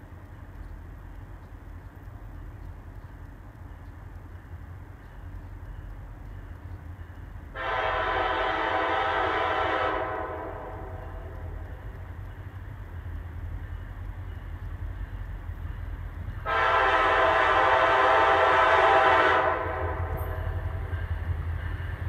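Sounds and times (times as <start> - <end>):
train air horn blast: 7.6 - 11.3, 16.4 - 20.9.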